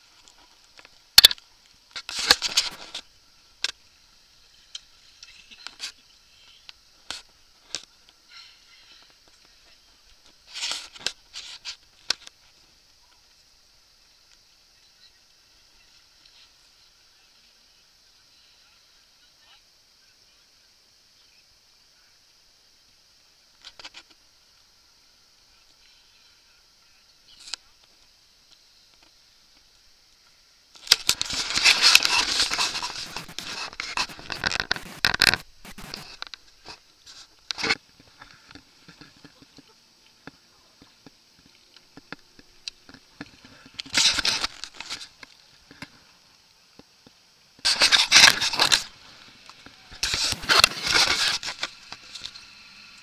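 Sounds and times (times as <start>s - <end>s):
rough scraping and crackling: 0.0s - 3.8s, 30.8s - 46.0s, 47.6s - 52.6s.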